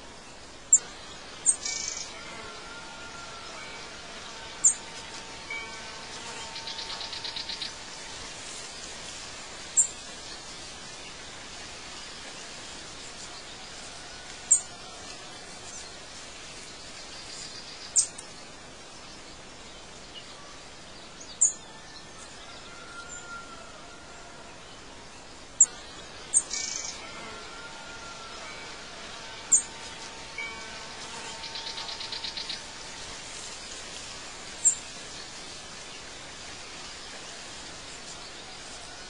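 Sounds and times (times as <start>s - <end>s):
outdoor ambience: 0.0s - 39.0s
bird trill: 25.6s - 27.0s.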